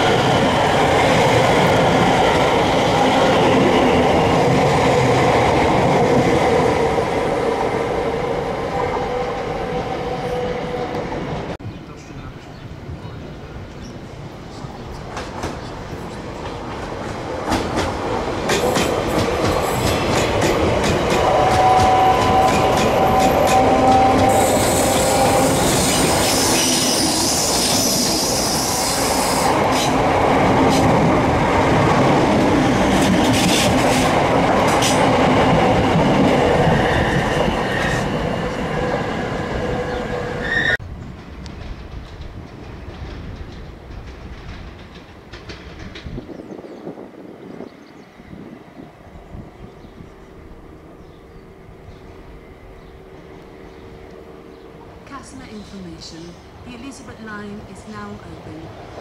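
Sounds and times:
train running on rails: 0.0 - 59.0
train wheels squealing: 21.1 - 29.5, 39.9 - 40.8
wheels clicking over rail joints: 41.1 - 46.4.

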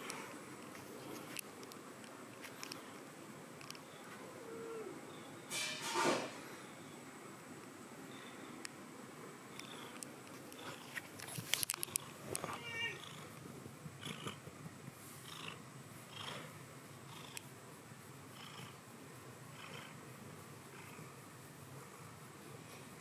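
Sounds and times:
cat purring: 9.6 - 11.0, 11.6 - 17.5, 18.3 - 22.9
handling clicks and rustles: 9.6 - 12.6.

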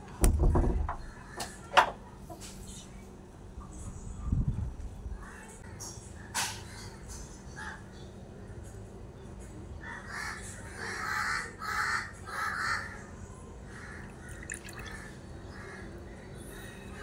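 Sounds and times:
milk pouring into clay pot: 14.0 - 15.2.

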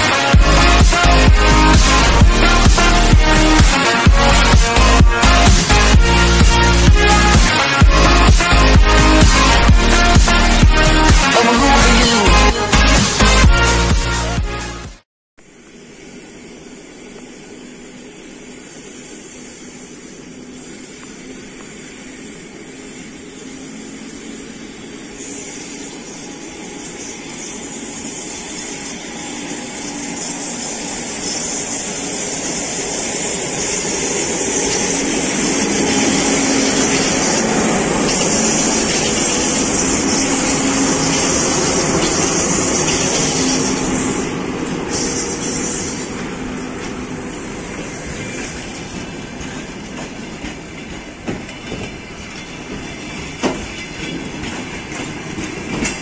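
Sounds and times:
electric locomotive running: 0.0 - 14.2, 15.4 - 56.0
high hiss: 15.5 - 49.2.

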